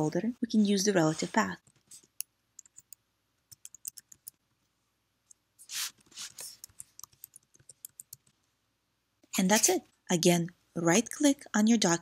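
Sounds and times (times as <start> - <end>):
typing on computer keyboard: 1.6 - 4.4, 6.6 - 8.4
short hiss: 5.6 - 6.6.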